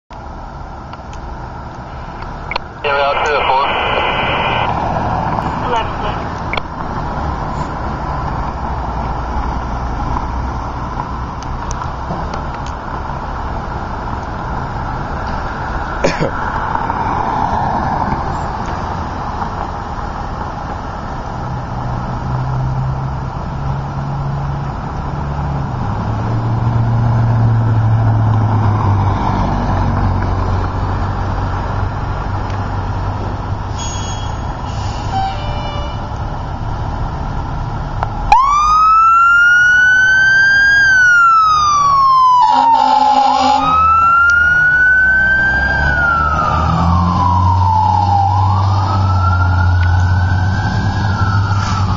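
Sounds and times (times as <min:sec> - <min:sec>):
fire engine siren wailing: 0:02.5 - 0:08.3, 0:38.2 - 0:51.9
horn blast: 0:42.4 - 0:43.9.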